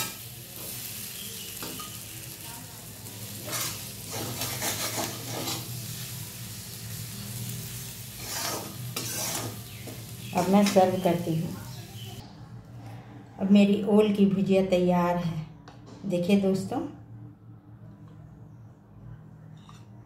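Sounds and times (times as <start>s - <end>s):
hot oil sizzling: 0.0s - 12.2s
metal spatula scraping a pan: 3.2s - 11.2s.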